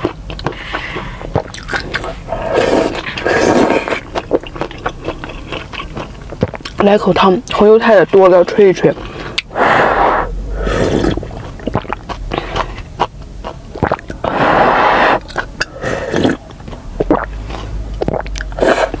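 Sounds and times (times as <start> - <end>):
wet chewing: 0.0 - 9.8, 10.6 - 19.0
slurping noodles and broth: 0.4 - 6.0, 9.0 - 13.1, 13.8 - 19.0
mouth clicks: 9.2 - 19.0.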